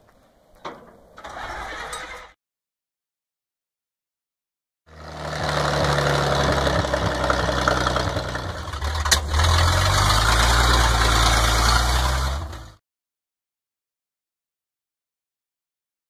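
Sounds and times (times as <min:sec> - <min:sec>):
truck engine running: 0:04.9 - 0:12.8.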